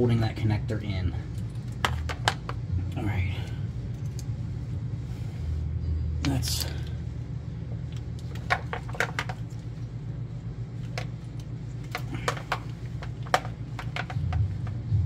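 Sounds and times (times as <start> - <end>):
steady low hum: 0.0 - 15.0
plastic connectors clicking and tapping: 1.4 - 2.6, 7.9 - 9.5, 11.8 - 14.8.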